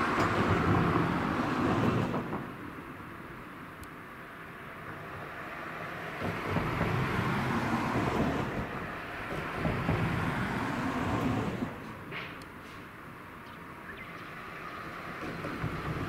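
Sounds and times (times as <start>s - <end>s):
vehicle rushing past: 5.3s - 12.0s.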